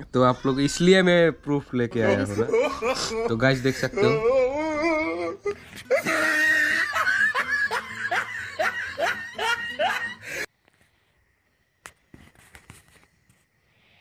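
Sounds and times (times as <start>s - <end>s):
person laughing: 2.1s - 10.5s.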